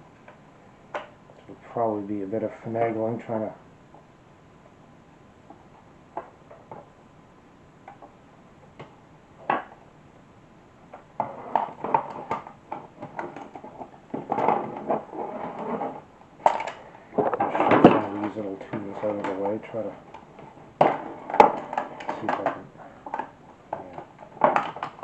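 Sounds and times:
plastic clicks and clatter: 16.4s - 25.0s.

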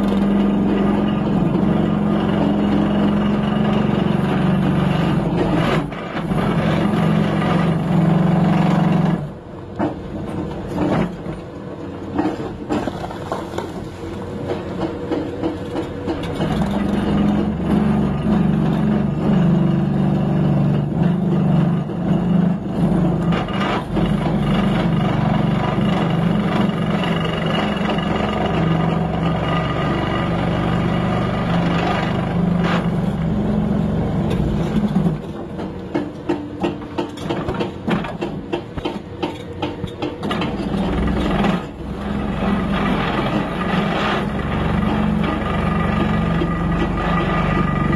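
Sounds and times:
hydraulic breaker hammering rock: 0.0s - 11.3s, 12.1s - 47.9s
diesel engine: 0.0s - 47.9s.

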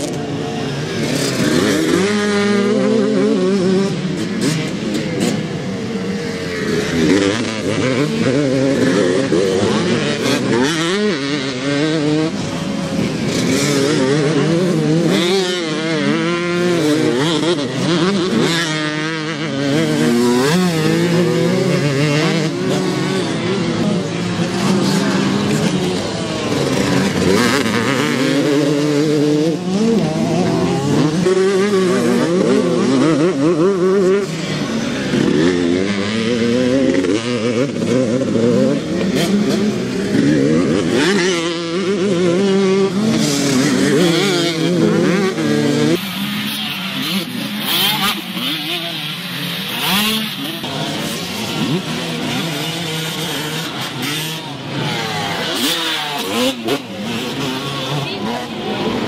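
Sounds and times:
motocross bike engines revving: 0.0s - 59.0s.

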